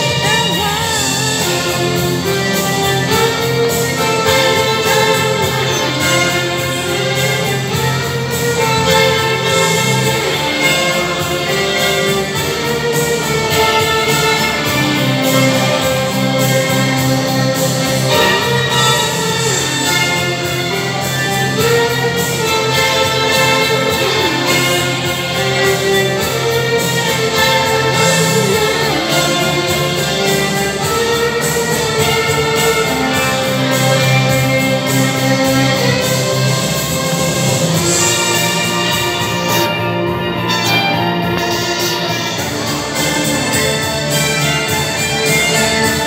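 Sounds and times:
low sustained bass notes: 0.0s - 46.0s
two violins playing: 0.0s - 46.0s.

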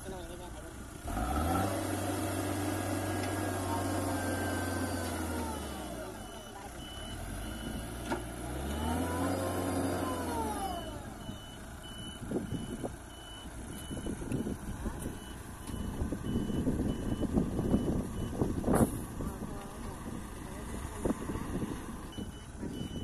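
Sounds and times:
diesel engine revving: 0.0s - 23.0s
reversing alarm beeping: 4.0s - 7.9s, 8.8s - 18.5s, 22.0s - 23.0s.

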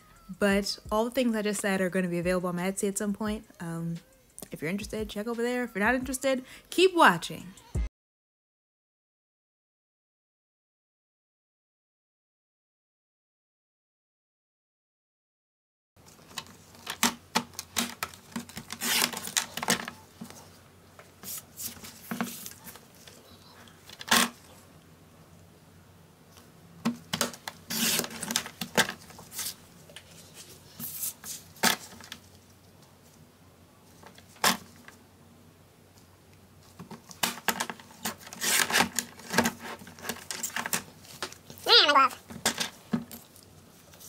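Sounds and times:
paper trimmer blade scraping: 18.7s - 19.3s, 27.7s - 28.4s, 38.0s - 40.4s
paper handling: 27.0s - 32.5s.

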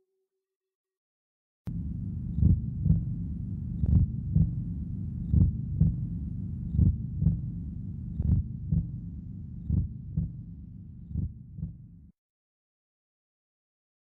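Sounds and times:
low double thumps: 1.7s - 11.9s
low hum: 1.7s - 12.1s.

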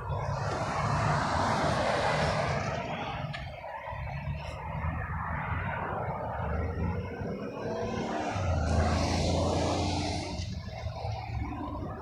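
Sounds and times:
vehicle passing: 4.1s - 12.0s.

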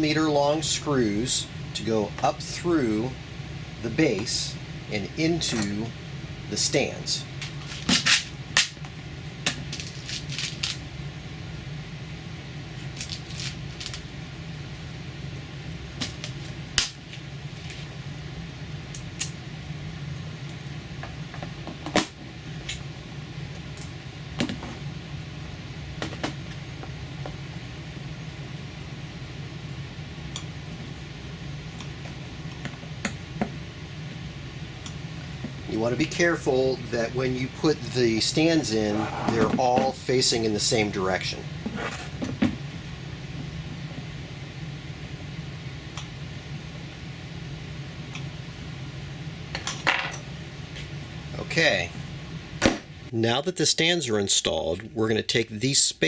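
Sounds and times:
low machine hum: 0.0s - 56.0s.

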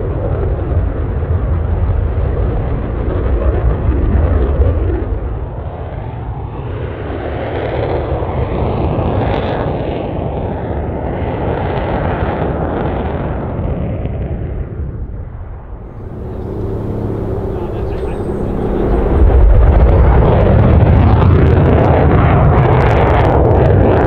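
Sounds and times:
jet flying past: 15.9s - 22.2s.

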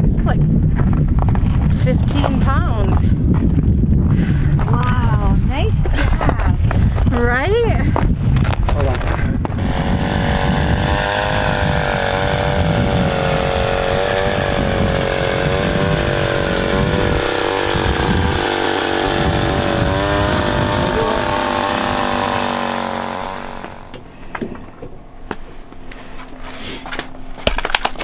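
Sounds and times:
power ice auger drilling: 8.9s - 24.0s.

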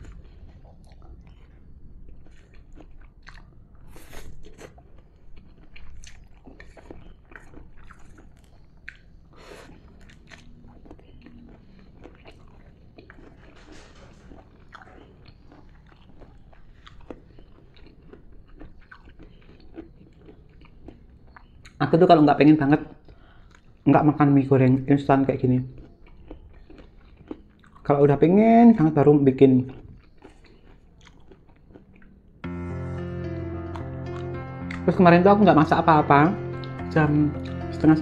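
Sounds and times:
person chewing crunchy food: 0.0s - 21.8s, 22.9s - 23.9s, 25.7s - 28.0s, 29.6s - 34.8s.

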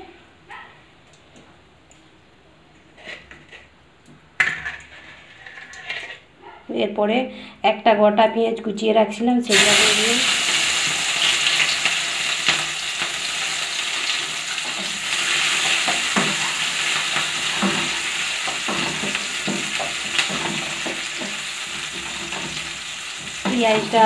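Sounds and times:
wooden spatula scraping a pan: 2.9s - 3.7s, 4.6s - 6.3s, 14.6s - 24.0s
onion sizzling in hot oil: 9.5s - 24.0s.

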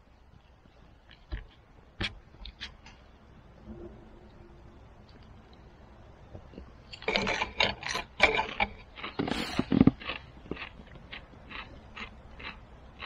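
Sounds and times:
crunchy chewing of pickle: 6.3s - 13.0s.

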